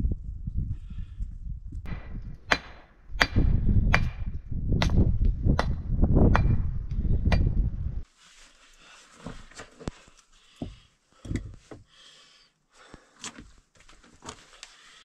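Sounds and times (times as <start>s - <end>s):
pick striking rock: 1.9s - 7.6s.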